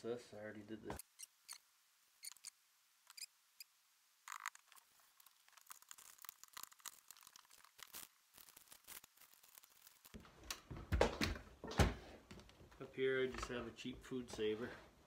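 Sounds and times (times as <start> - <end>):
plastic bag rustling and crinkling: 4.3 - 10.2.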